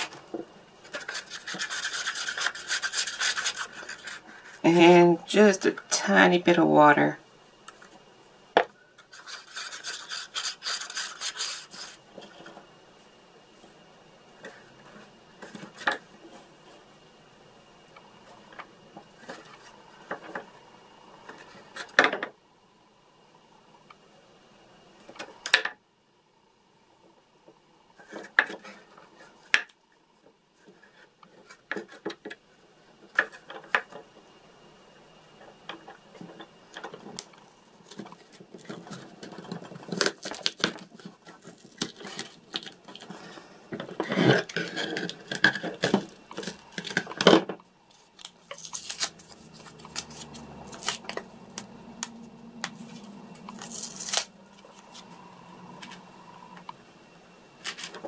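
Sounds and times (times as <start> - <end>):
clicks and scraping on wooden board: 0.0 - 4.6, 9.0 - 12.6.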